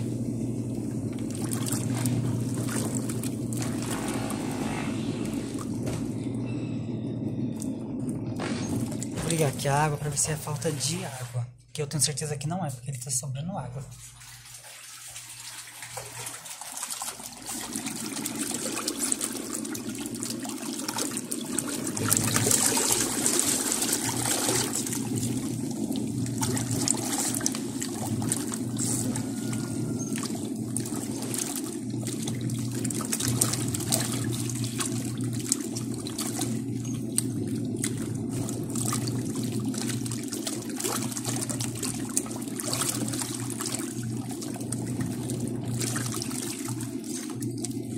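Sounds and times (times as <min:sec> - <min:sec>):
water sloshing and splashing: 0:00.0 - 0:06.4, 0:07.5 - 0:11.5, 0:13.8 - 0:47.9
washing machine motor hum: 0:00.0 - 0:47.9.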